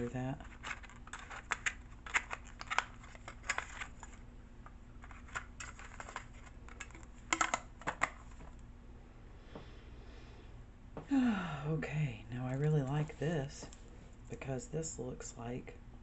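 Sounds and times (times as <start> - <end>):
plastic and metal handling clicks: 0.5 - 4.2, 5.0 - 8.2.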